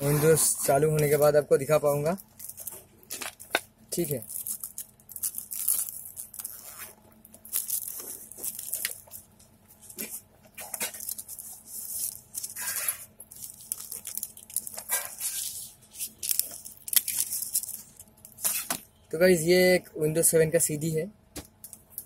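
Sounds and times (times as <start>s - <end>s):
rustling and crackling handling noise: 0.6s - 18.9s.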